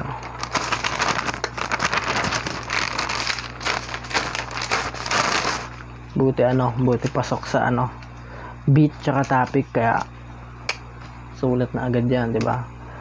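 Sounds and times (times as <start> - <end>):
paper rustling and crinkling: 0.0 - 5.8.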